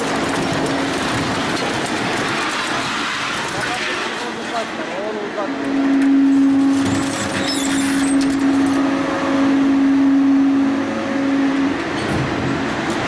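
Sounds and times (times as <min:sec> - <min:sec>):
hydraulic machine hum: 0:04.8 - 0:13.0
steel bars scraping and crackling: 0:06.2 - 0:08.9.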